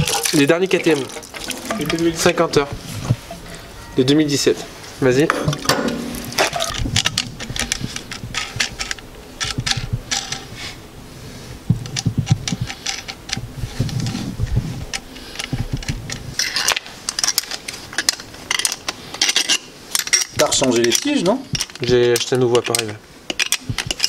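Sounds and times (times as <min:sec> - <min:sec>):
heavy metal knocks: 0:05.3 - 0:07.5
metal clicks and clinks: 0:14.9 - 0:24.0.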